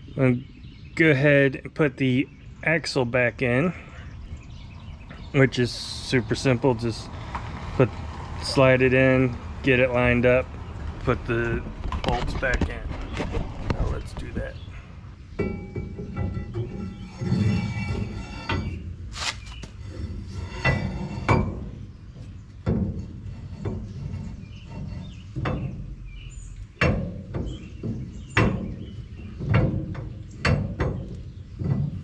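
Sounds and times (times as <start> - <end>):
metal knocks and clinks: 15.4 - 18.8.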